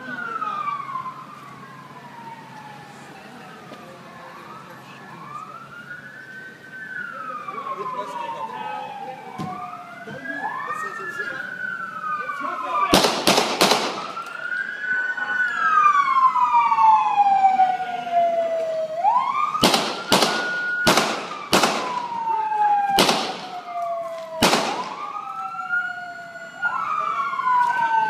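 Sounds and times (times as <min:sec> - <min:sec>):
wailing emergency siren: 0:00.0 - 0:28.0
handgun gunshots: 0:12.9 - 0:14.0, 0:19.6 - 0:22.0, 0:23.0 - 0:23.4, 0:24.4 - 0:24.9.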